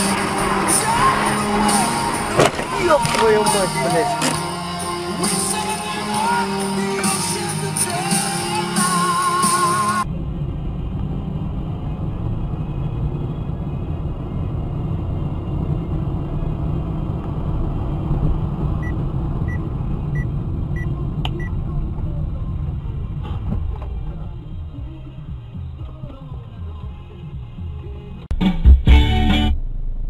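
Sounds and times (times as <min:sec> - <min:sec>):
music: 0:00.0 - 0:10.1, 0:23.8 - 0:29.9
car road and engine rumble: 0:00.0 - 0:30.0.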